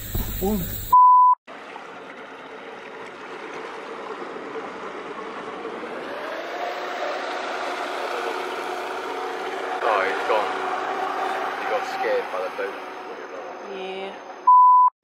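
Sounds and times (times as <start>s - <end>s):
rushing water noise: 1.5s - 14.4s
motorboat engine running: 1.5s - 14.5s.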